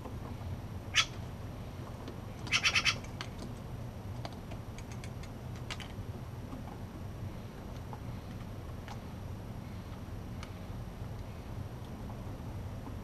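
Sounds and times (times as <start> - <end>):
jay calling: 0.9 - 1.2, 2.5 - 3.1.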